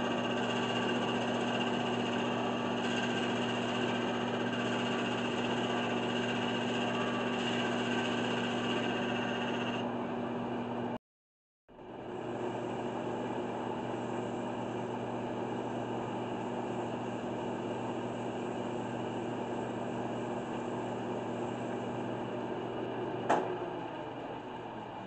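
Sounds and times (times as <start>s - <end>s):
wood lathe motor hum: 0.0s - 11.0s, 12.0s - 24.9s.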